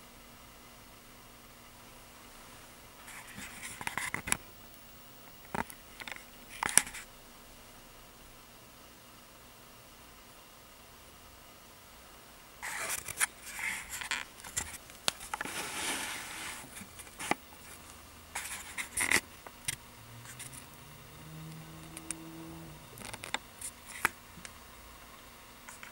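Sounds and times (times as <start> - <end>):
rustling: 12.6 - 24.5
faint low drone: 19.9 - 23.3.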